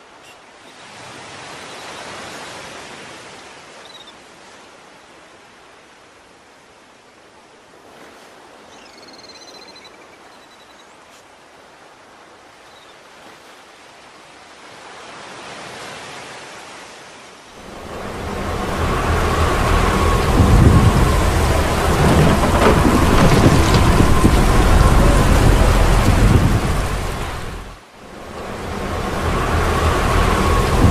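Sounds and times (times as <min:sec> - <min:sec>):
water: 0:00.0 - 0:30.9
wind: 0:00.0 - 0:30.9
heavy rain: 0:17.5 - 0:30.9
steady high tone: 0:17.6 - 0:22.1, 0:23.8 - 0:30.9
rumbling thunder: 0:17.6 - 0:30.9.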